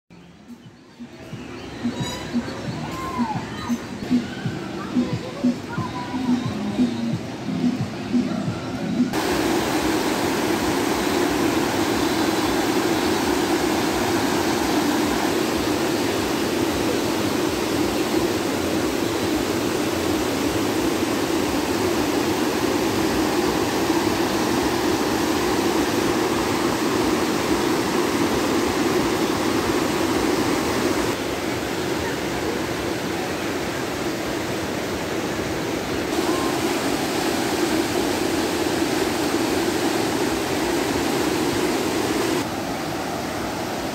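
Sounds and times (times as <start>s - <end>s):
river rushing over rocks: 8.4s - 43.9s.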